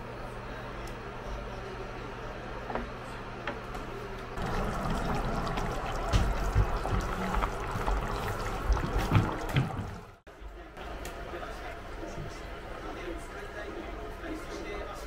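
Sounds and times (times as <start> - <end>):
broth bubbling and popping: 4.4 - 10.2.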